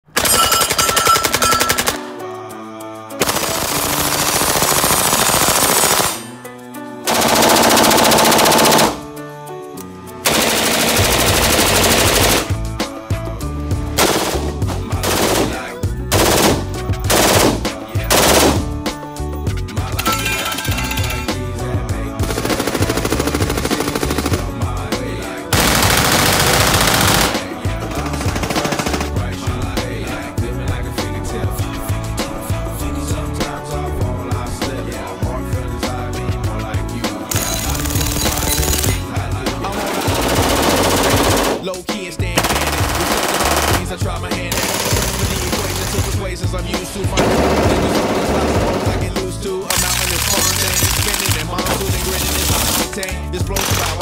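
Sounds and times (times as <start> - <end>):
background music: 0.0 - 54.0
automatic rifle fire: 0.1 - 2.2, 3.2 - 6.4, 7.1 - 9.0, 10.3 - 12.6, 14.0 - 18.7, 25.5 - 29.2, 40.0 - 41.7, 42.4 - 43.9, 44.5 - 46.2, 47.2 - 49.0
submachine gun bursts: 0.1 - 2.2, 3.2 - 6.4, 7.1 - 9.1, 10.3 - 12.6, 14.0 - 18.6, 25.6 - 29.2, 37.3 - 39.0, 39.8 - 41.7, 42.4 - 43.9, 44.5 - 46.2, 47.2 - 49.1, 49.7 - 54.0.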